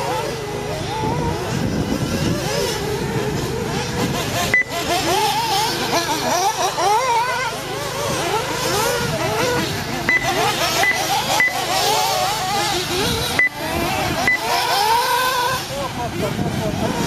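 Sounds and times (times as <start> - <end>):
rc car engines: 0.0 - 17.0
click with high beep: 10.1 - 11.6.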